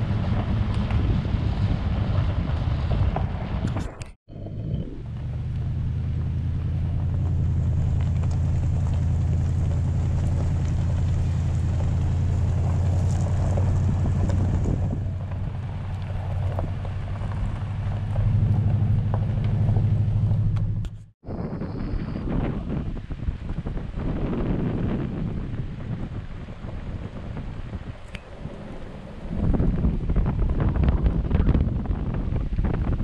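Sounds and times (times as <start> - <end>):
wind on microphone: 0.0 - 33.0
truck engine running: 4.9 - 21.1
tyre noise on gravel: 5.8 - 21.0.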